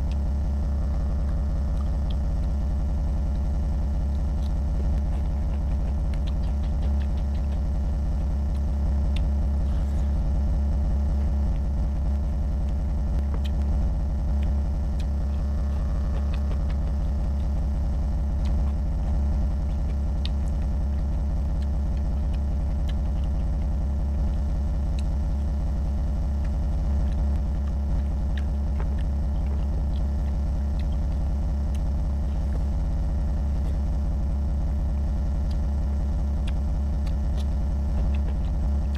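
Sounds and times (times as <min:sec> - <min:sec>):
steady low hum: 0:00.0 - 0:38.9
wet chewing and mixing by hand: 0:00.0 - 0:38.9.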